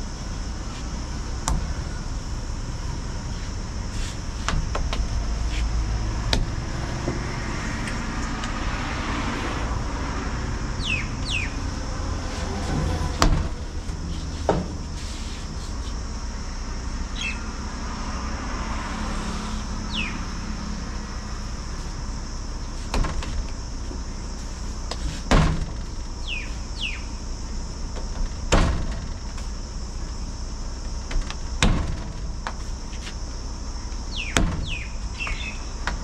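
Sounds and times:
low outdoor rumble: 0.0s - 36.0s
steady high hiss: 0.0s - 36.0s
bird chirps: 10.8s - 11.6s, 17.1s - 17.5s, 19.8s - 20.3s, 26.2s - 27.2s, 34.1s - 35.7s.

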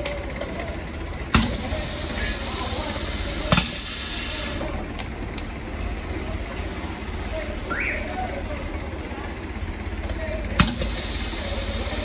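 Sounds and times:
pneumatic cylinder clack: 0.0s - 5.6s, 10.5s - 12.0s
low machine hum: 0.0s - 12.0s.

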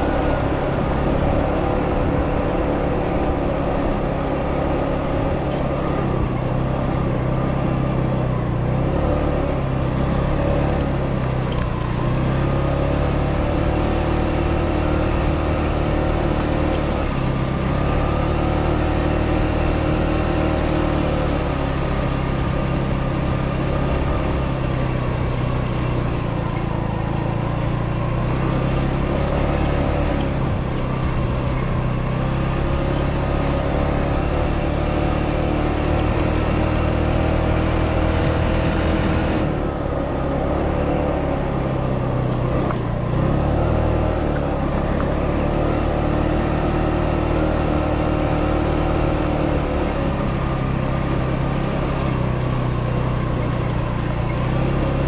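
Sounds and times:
scooter engine running: 0.0s - 55.0s
wind and road noise: 0.0s - 55.0s.

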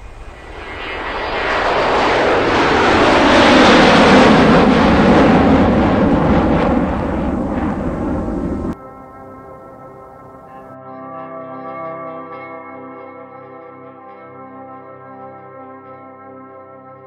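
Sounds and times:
loud jet engine rushing: 0.0s - 8.8s.

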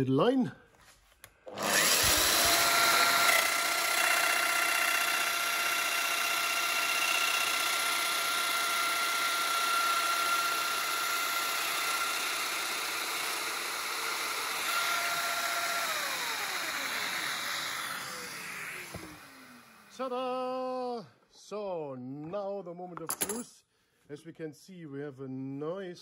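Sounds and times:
power tool motor whine: 1.5s - 20.0s.

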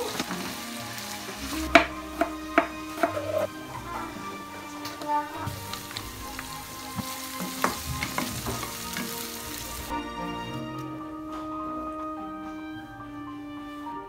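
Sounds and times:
garlic sizzling in hot oil: 0.0s - 9.9s
spatula scraping pan: 1.6s - 4.4s.

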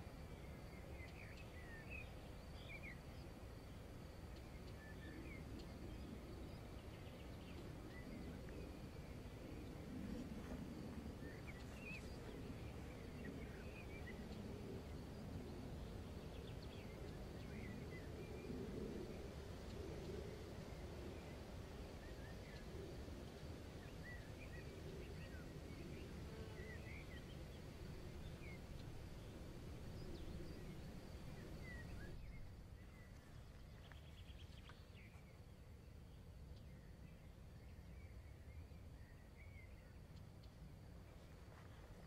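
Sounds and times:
low steady rumble: 26.9s - 34.9s.

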